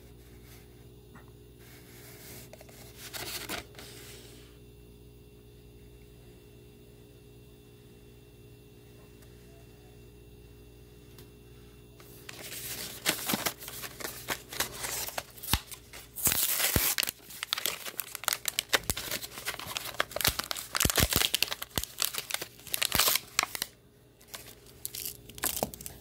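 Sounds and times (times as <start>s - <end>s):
plastic tray crinkling: 12.2s - 26.0s
paper card tearing: 12.3s - 26.0s.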